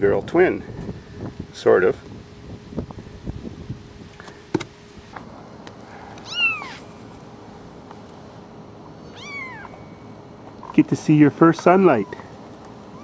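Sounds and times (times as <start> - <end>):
kitten mewing: 5.9 - 6.9, 9.0 - 9.9, 11.8 - 12.3.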